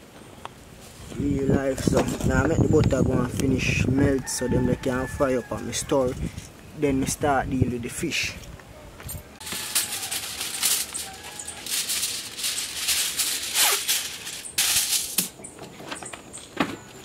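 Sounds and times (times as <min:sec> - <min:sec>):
aluminium foil crinkling: 0:09.4 - 0:15.4.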